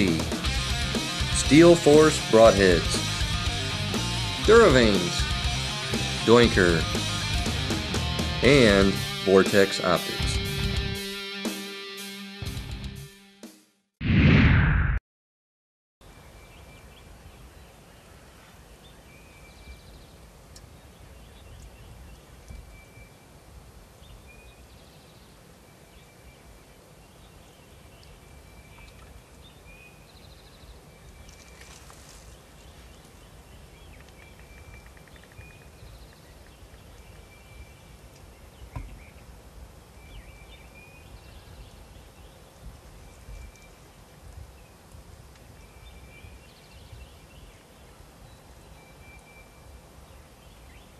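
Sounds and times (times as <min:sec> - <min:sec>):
birds calling: 0:00.0 - 0:10.2, 0:24.1 - 0:42.4.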